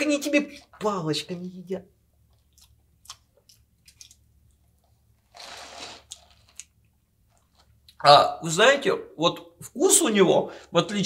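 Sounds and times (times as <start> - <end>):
man chewing rice: 2.0 - 8.0.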